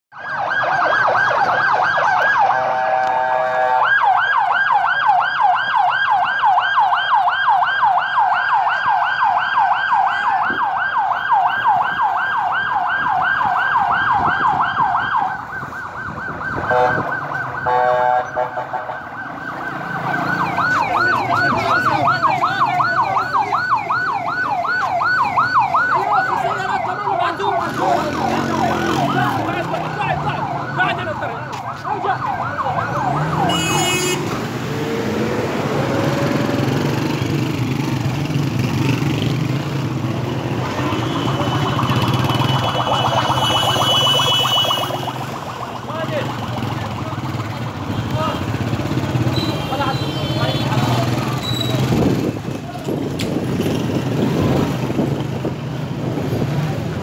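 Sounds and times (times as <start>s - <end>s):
ambulance siren yelping: 0.1s - 38.0s, 39.8s - 51.2s
short steady siren tones: 41.0s - 46.8s.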